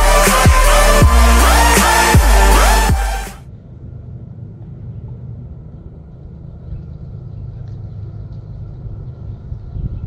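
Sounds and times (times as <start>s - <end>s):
train rumbling: 3.4s - 10.0s.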